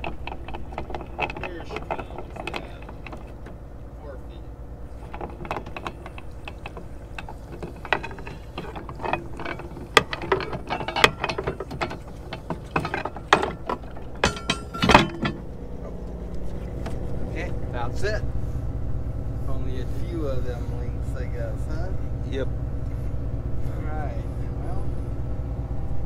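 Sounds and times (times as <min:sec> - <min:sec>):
anchor chain clanking: 0:00.0 - 0:18.2
windlass low hum: 0:00.0 - 0:26.0.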